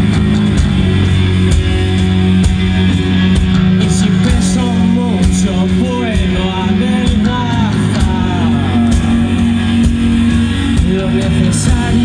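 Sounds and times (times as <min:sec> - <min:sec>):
bass guitar: 0:00.0 - 0:12.0
drums: 0:00.0 - 0:12.0
electric guitar: 0:00.0 - 0:12.0
man singing: 0:03.8 - 0:12.0.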